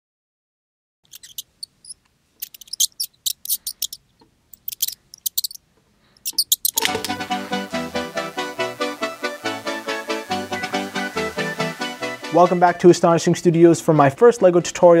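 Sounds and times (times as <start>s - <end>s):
high-pitched mouse squeaks: 1.1s - 5.6s, 6.2s - 6.9s
music: 6.8s - 15.0s.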